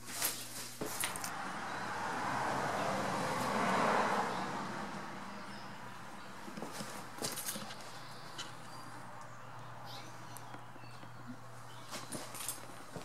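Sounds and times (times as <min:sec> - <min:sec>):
vehicle passing by: 0:01.3 - 0:07.7.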